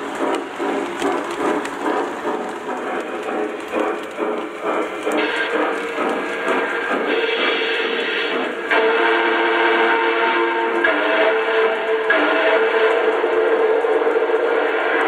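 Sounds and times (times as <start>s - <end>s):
model train wheels clattering: 0.0s - 9.9s.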